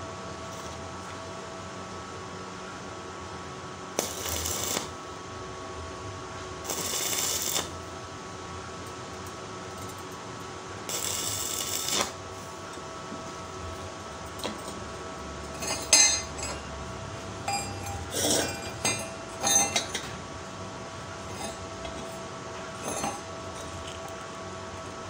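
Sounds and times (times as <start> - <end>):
welding arc crackling: 3.9 - 5.0, 6.6 - 7.8, 10.8 - 12.2.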